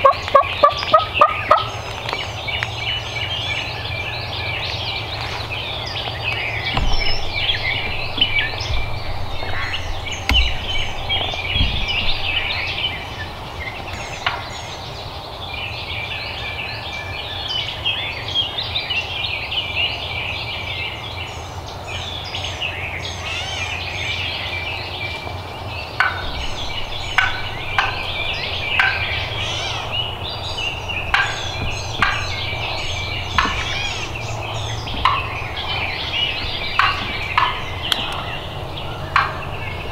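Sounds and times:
turkey gobbling: 0.0s - 1.8s, 26.0s - 39.9s
songbirds calling: 0.0s - 39.9s.

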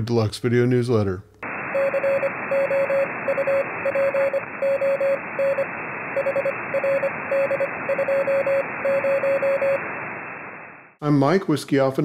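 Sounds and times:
radio static hiss: 1.4s - 11.0s
morse code tone: 1.7s - 9.8s.

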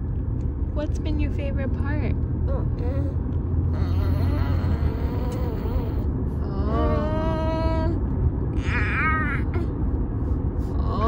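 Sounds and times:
car cabin rumble: 0.0s - 11.0s
baby vocalizing: 3.7s - 6.1s.

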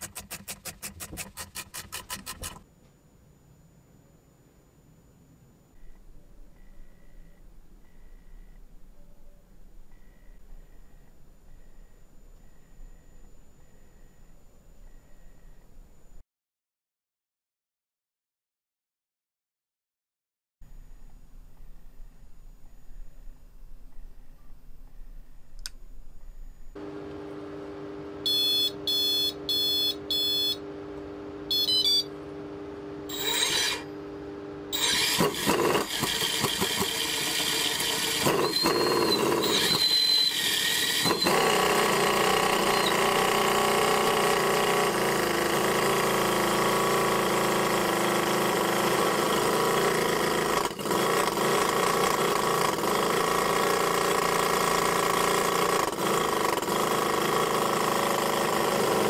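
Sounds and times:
electric starter spinning: 26.8s - 59.0s
electronic beeps: 28.3s - 30.6s, 31.5s - 32.2s
model engine running: 34.7s - 59.0s.

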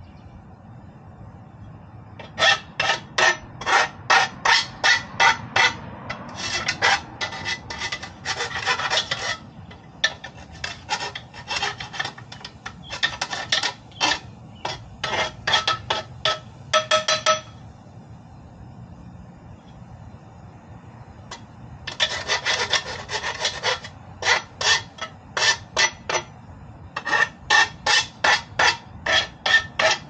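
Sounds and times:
hand file rasping on metal: 2.2s - 17.3s, 21.3s - 26.3s, 27.0s - 30.0s.

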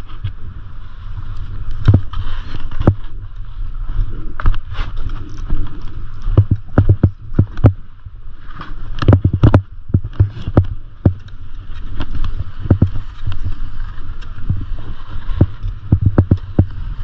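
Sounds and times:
skis scraping over snow: 0.0s - 17.0s
wind buffeting microphone: 0.0s - 17.0s
sharp knocks and clatter: 6.3s - 7.8s, 9.0s - 11.2s, 12.6s - 13.0s, 15.4s - 16.8s.

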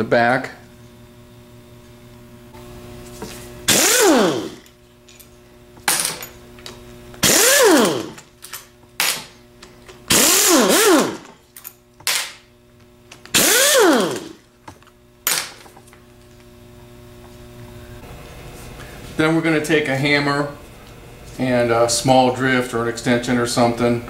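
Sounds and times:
power driver whining: 0.8s - 18.2s.

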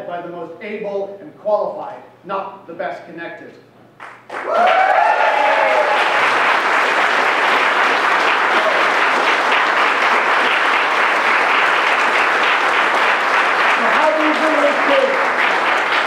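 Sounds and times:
crowd applauding: 4.0s - 16.0s.

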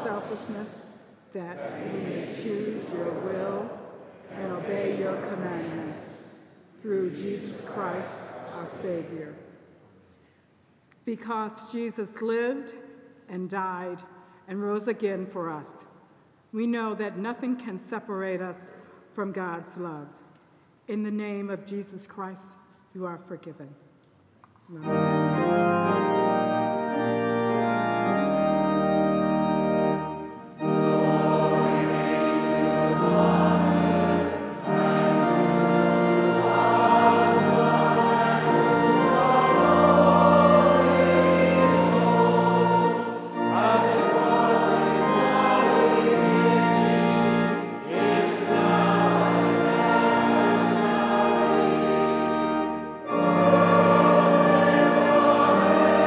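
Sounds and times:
pipe organ: 0.0s - 1.0s, 24.7s - 56.0s
choir singing: 0.0s - 9.4s, 25.4s - 56.0s.

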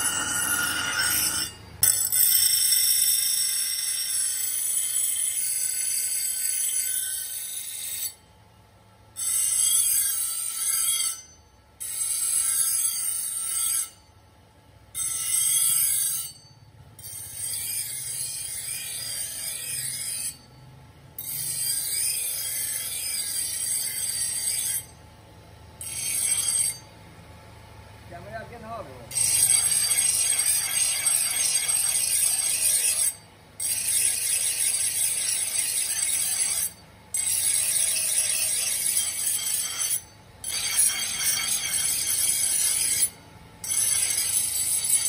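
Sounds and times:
metal grinding screech: 0.0s - 5.2s, 29.1s - 45.0s.

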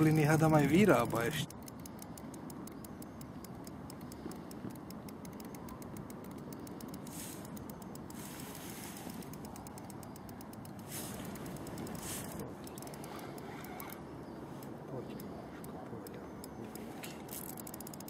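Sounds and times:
faint fast ticking: 0.0s - 18.0s
wind: 0.0s - 18.0s
short hissing gusts: 7.0s - 9.4s, 10.8s - 14.0s.

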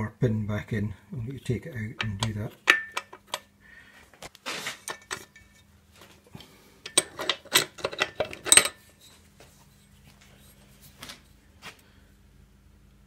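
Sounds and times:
faint steady hum: 0.0s - 13.0s
metal clinking and clattering: 2.0s - 3.5s, 4.8s - 5.7s, 6.8s - 8.9s.

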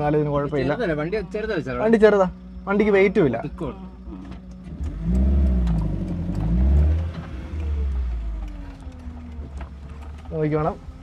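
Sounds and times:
car engine revving: 0.0s - 11.0s.

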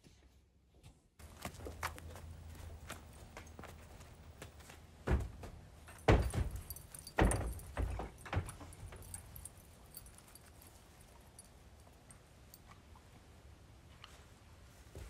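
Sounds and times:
horse hooves thudding on trailer floor: 1.2s - 10.1s.

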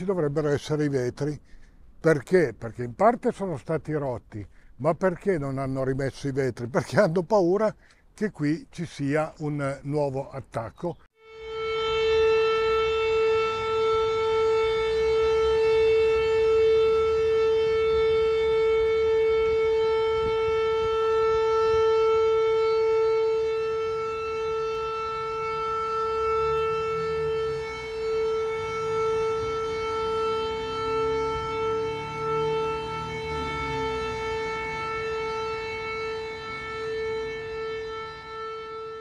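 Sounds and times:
air-raid siren steady tone: 11.1s - 39.0s.

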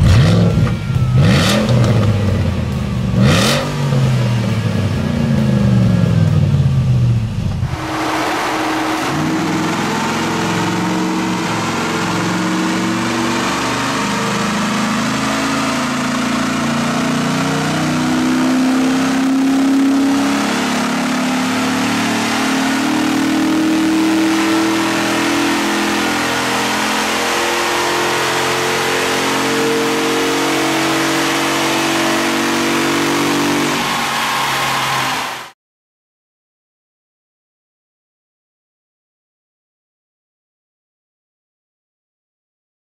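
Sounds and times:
truck engine on dyno: 0.0s - 35.6s.

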